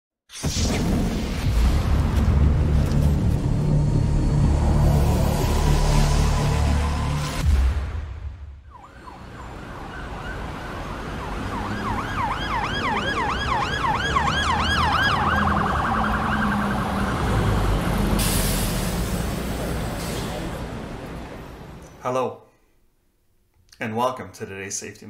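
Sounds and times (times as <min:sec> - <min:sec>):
low vehicle rumble: 0:01.8 - 0:07.4
emergency vehicle siren: 0:03.5 - 0:07.4, 0:08.6 - 0:21.8.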